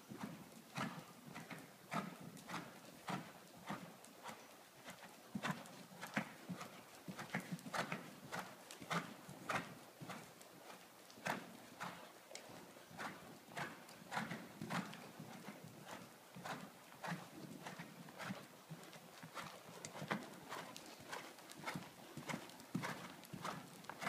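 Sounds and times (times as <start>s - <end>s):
hoofbeats on sand: 13.0s - 24.0s.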